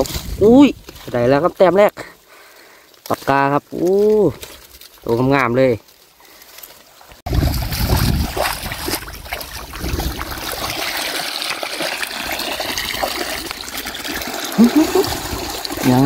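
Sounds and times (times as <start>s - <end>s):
water trickling through mesh: 3.0s - 16.0s
net sloshing in water: 6.9s - 16.0s.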